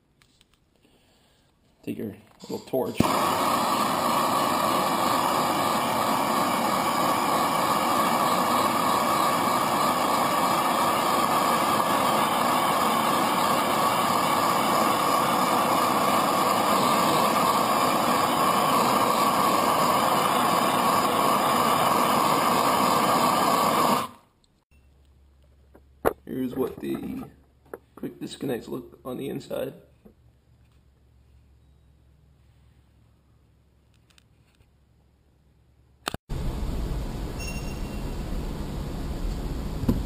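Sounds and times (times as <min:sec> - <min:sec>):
gas torch hissing: 0:02.4 - 0:24.2.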